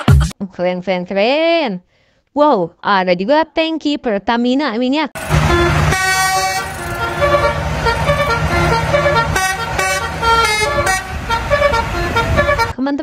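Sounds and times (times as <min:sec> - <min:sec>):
truck engine running: 0:05.2 - 0:12.8
truck horn tooting short notes: 0:05.2 - 0:12.8.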